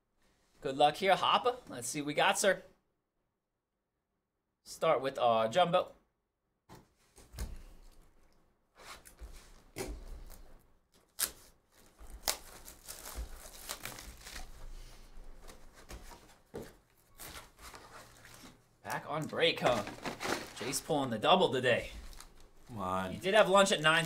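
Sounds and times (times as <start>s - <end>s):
plastic shrink wrap tearing: 11.0s - 14.6s.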